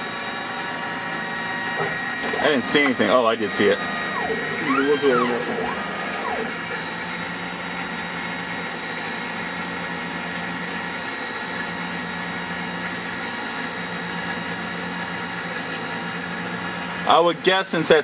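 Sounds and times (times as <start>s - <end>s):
soldering machine humming: 0.0s - 10.4s.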